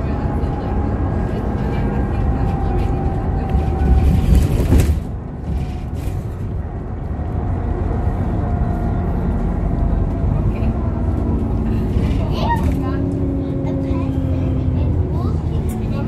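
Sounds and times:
bus engine and road rumble: 0.0s - 16.0s.

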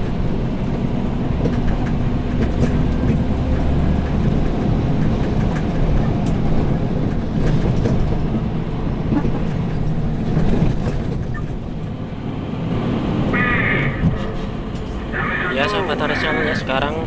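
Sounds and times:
light rattles in cab: 0.0s - 12.0s
truck diesel engine humming: 0.0s - 17.0s.

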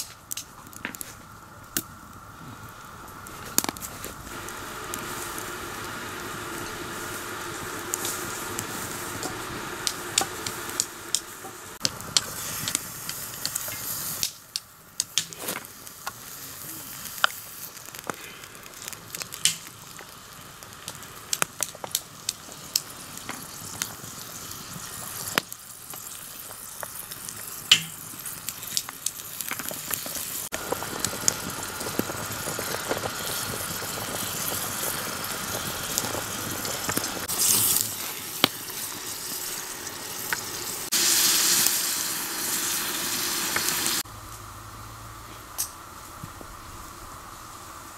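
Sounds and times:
sharp crackles and clicks: 0.0s - 44.5s
meat sizzling in oil: 2.8s - 44.1s.

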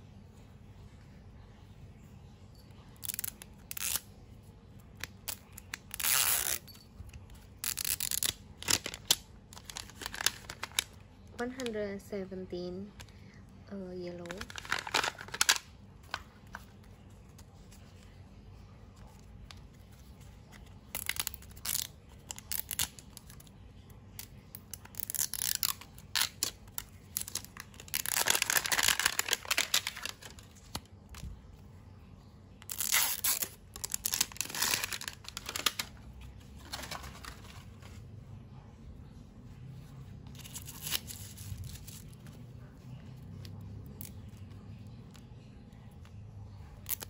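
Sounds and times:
plastic packaging tearing and crinkling: 3.0s - 4.1s, 5.0s - 11.8s, 14.2s - 16.8s, 20.4s - 23.5s, 24.1s - 31.4s, 32.6s - 36.0s, 36.6s - 38.0s, 40.3s - 42.4s.

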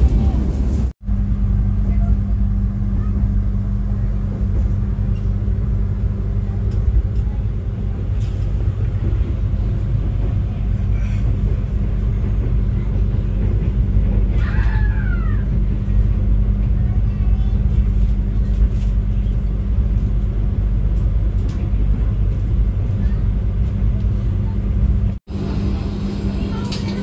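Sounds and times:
constant low hum: 0.0s - 27.0s
train carriage rumble: 0.0s - 27.0s.

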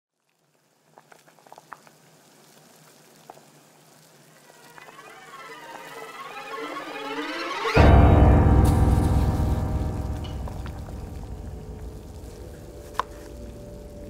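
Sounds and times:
water boiling and bubbling: 0.1s - 5.3s
wavering tone: 4.5s - 14.0s
low steady hum: 7.8s - 14.0s.

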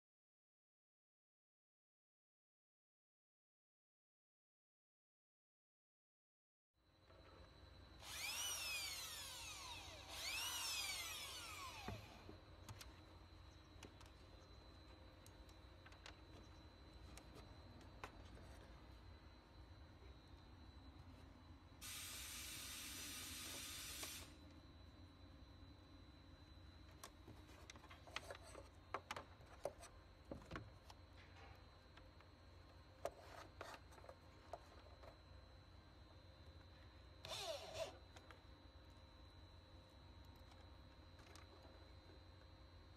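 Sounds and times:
faint steady hum: 6.8s - 42.9s
electric drill whining: 8.0s - 12.3s, 21.8s - 24.4s, 37.2s - 38.0s.

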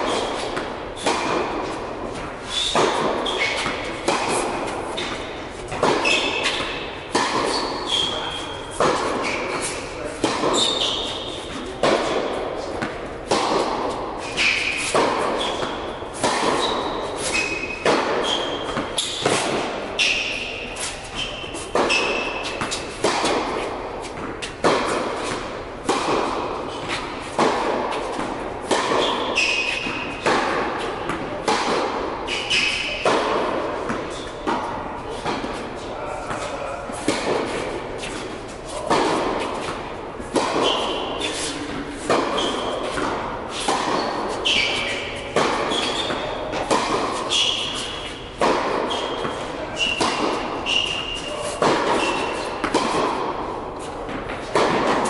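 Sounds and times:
rackets hitting tennis ball: 0.0s - 55.0s
shoe squeaks: 2.4s - 11.7s, 14.2s - 23.0s, 29.0s - 30.2s, 32.3s - 33.0s, 40.6s - 48.3s, 48.9s - 52.6s
ball bouncing on court: 2.8s - 20.4s, 21.3s - 35.6s, 38.8s - 55.0s.

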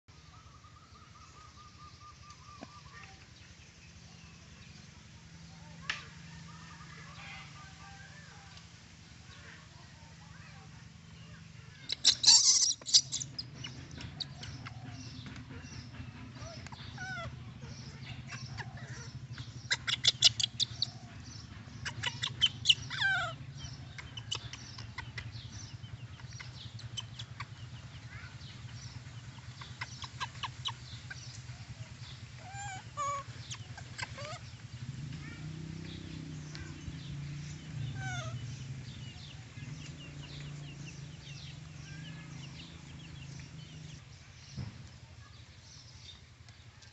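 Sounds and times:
animal chirps: 11.7s - 44.0s.

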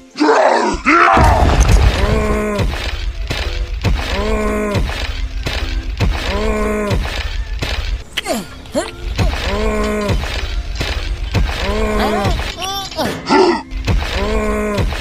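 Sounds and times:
brief crash-like noise: 1.2s - 2.9s.

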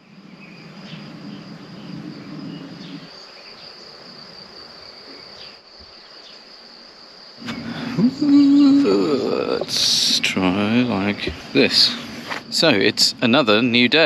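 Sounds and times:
low rumble: 0.0s - 3.1s
crickets trilling: 0.0s - 14.0s.

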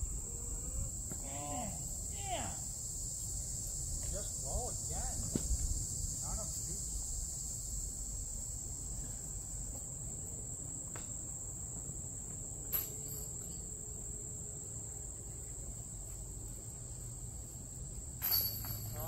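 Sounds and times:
insects trilling: 0.0s - 19.0s.

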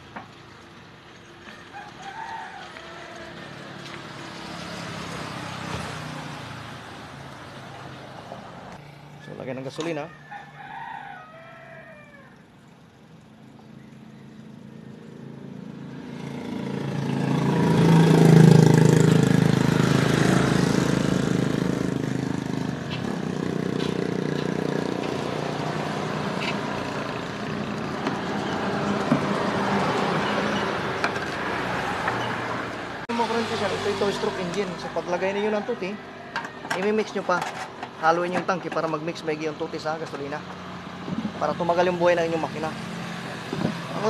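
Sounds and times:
rooster crowing: 1.5s - 3.8s, 10.0s - 12.5s, 34.8s - 37.2s.

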